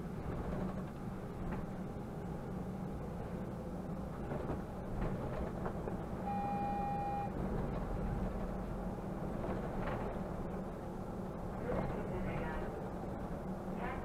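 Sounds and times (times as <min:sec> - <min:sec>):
bus engine hum: 0:00.0 - 0:14.0
road rumble: 0:00.0 - 0:14.0
electronic beep: 0:06.3 - 0:07.3.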